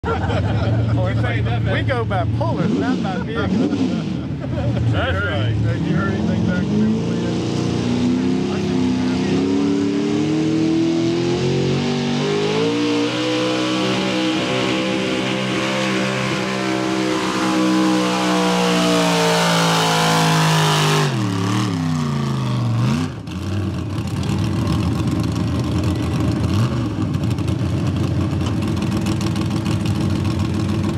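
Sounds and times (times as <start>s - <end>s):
pickup engine at full throttle: 0.0s - 30.9s
engine rough idle: 23.2s - 30.9s.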